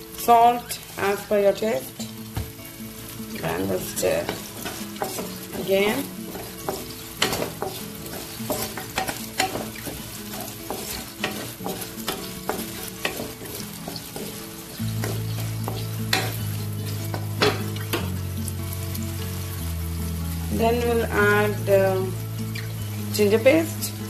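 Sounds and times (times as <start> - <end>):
okra sizzling in hot oil: 0.0 - 24.0
spatula scraping a pan: 3.0 - 19.4.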